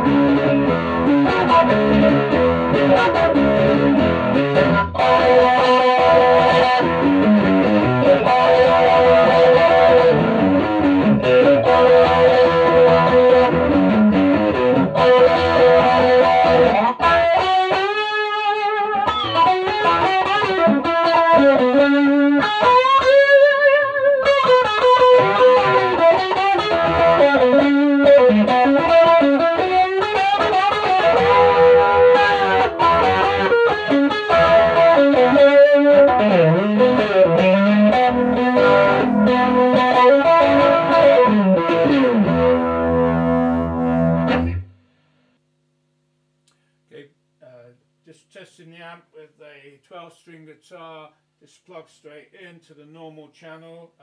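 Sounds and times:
electric guitar melody: 0.0s - 44.8s.

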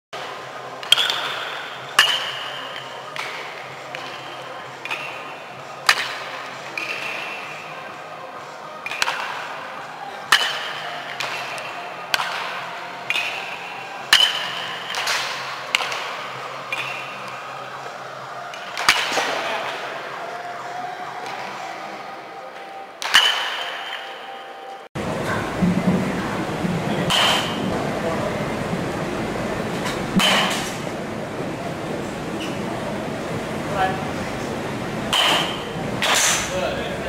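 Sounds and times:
metal baseball bats hitting balls: 0.8s - 7.7s, 8.8s - 9.6s, 10.2s - 17.5s, 18.5s - 19.9s, 23.0s - 24.6s, 27.1s - 27.7s, 29.8s - 30.8s, 35.1s - 36.6s.

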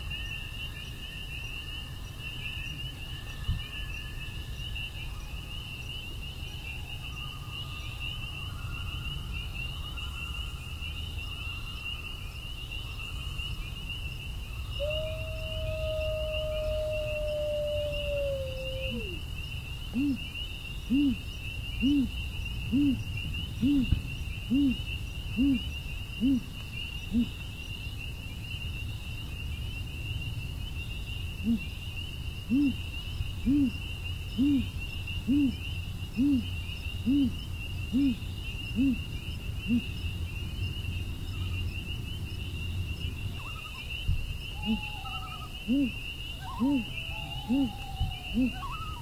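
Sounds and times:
crickets chirping: 0.0s - 49.0s
owl hooting: 14.8s - 19.2s, 19.9s - 20.3s, 20.9s - 23.0s, 23.6s - 26.5s, 27.1s - 27.4s, 31.4s - 31.7s, 32.5s - 32.8s, 33.4s - 33.8s, 34.4s - 35.6s, 36.2s - 39.0s, 39.6s - 39.9s, 44.6s - 49.0s.

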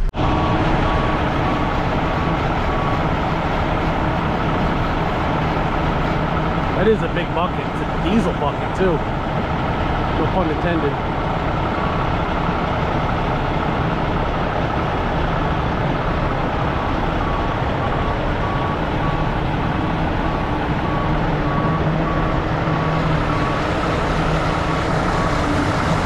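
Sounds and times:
heavy diesel engines running: 0.0s - 26.0s
backup alarm beeping: 16.8s - 26.0s.

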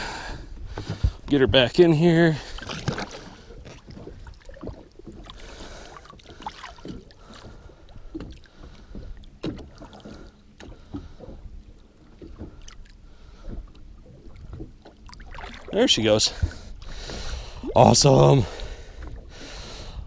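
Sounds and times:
water lapping at boat side: 0.0s - 20.0s
small splashes: 2.4s - 11.3s, 12.2s - 16.7s.

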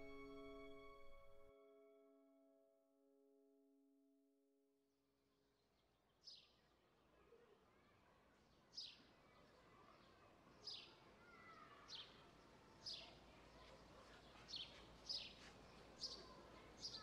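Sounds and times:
faint outdoor background noise: 5.0s - 17.0s.

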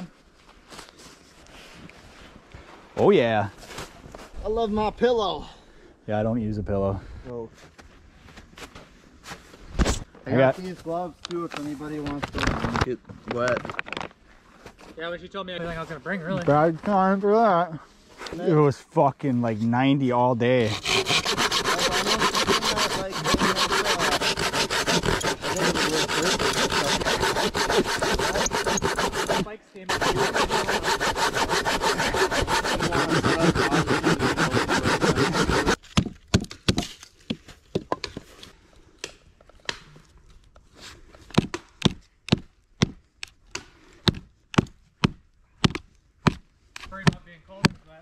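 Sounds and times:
knife batoned through wood: 20.6s - 35.8s
saw cutting through log: 20.6s - 35.8s.

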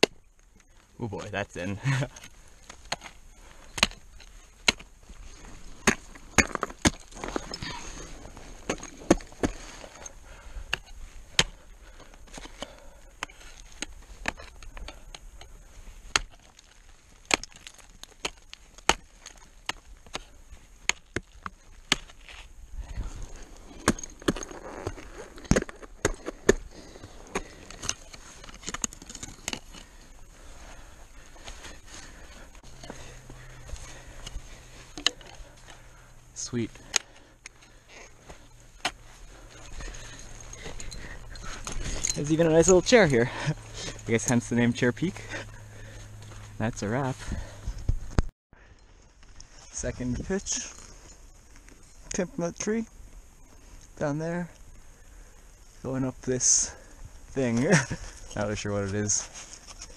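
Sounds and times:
ice axes striking ice: 3.7s - 4.9s, 5.8s - 9.9s, 16.0s - 22.4s.

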